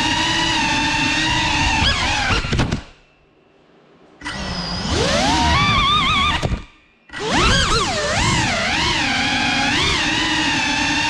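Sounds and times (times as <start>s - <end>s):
drone motors whining: 0.0s - 3.2s, 4.2s - 11.0s.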